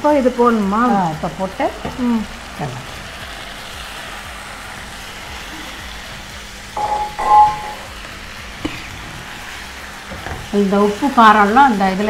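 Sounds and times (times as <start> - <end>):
gravy sizzling in a frying pan: 0.0 - 12.0
short ringing sound: 6.8 - 7.9.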